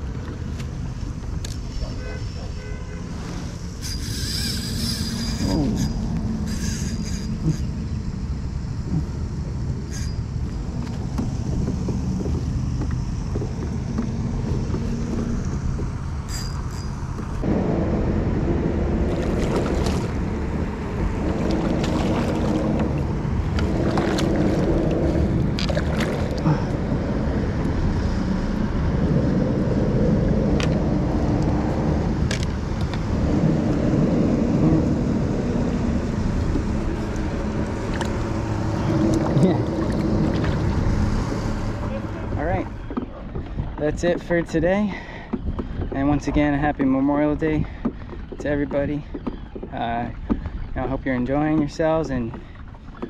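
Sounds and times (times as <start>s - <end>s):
low hum: 0.0s - 44.1s
wind buffeting microphone: 4.6s - 16.3s, 16.9s - 53.0s
water sloshing: 19.0s - 28.6s, 36.0s - 53.0s.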